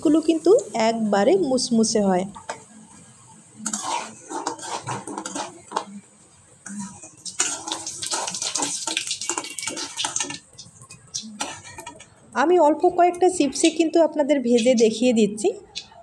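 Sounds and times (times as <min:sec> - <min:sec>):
metal utensils scraping a wok: 0:03.6 - 0:05.9, 0:06.8 - 0:10.4, 0:11.1 - 0:12.1
chips sizzling in hot oil: 0:07.1 - 0:12.0.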